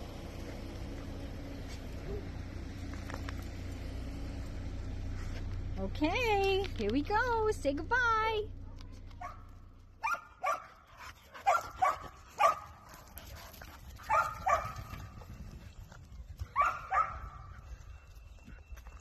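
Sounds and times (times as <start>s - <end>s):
dogs play barking: 8.6s - 15.2s, 16.3s - 17.7s.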